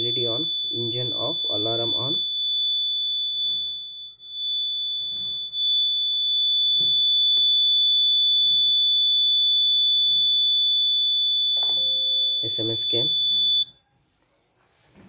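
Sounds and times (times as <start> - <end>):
high-pitched alarm buzzer tone: 0.0 - 13.7.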